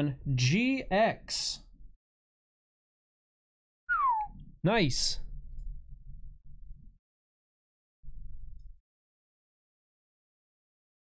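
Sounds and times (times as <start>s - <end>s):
spoken word: 4.6s - 5.2s.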